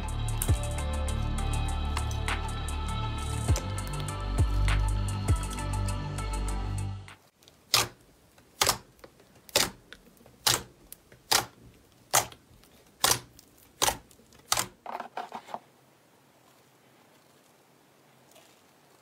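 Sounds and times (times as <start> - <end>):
fingers popping slime: 8.6 - 12.4, 13.0 - 14.7.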